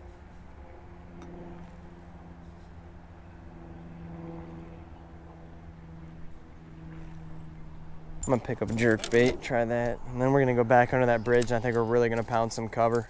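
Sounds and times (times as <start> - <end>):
electric trolling motor humming: 0.0 - 12.1.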